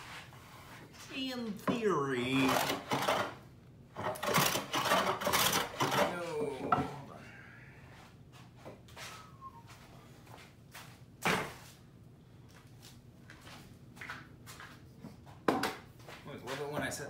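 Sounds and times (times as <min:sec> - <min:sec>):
faint footsteps: 0:07.9 - 0:11.8, 0:12.4 - 0:17.0.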